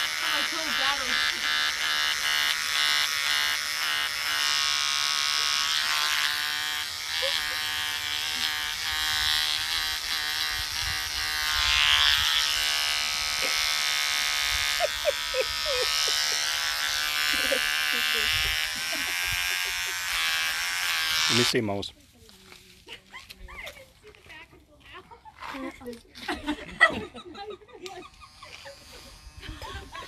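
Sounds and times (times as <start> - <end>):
beard trimmer buzzing: 0.0 - 21.7, 27.8 - 30.0.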